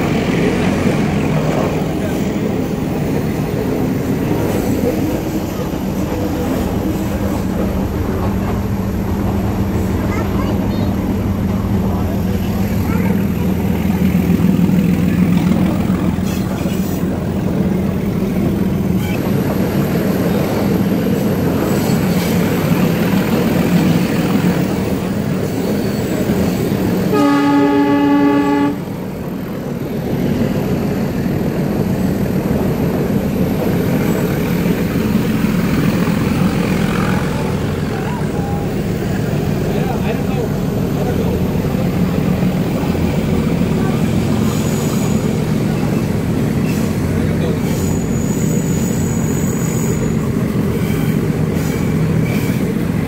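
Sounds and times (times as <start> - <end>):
train rumbling on track: 0.0 - 53.0
train horn: 27.0 - 28.9.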